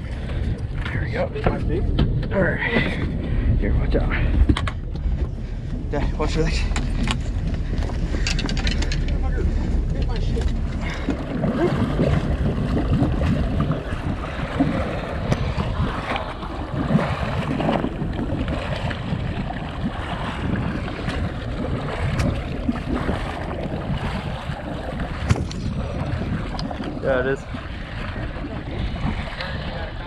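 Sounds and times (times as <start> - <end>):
sea water washing around boat: 0.0 - 30.0
wind buffeting microphone: 0.0 - 30.0
small clicks and knocks: 8.2 - 9.2.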